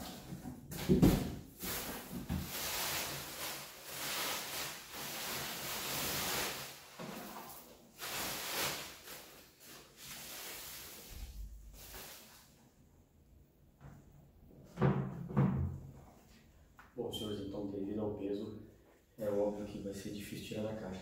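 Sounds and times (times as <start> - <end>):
plastic bag rustling: 1.5 - 12.5.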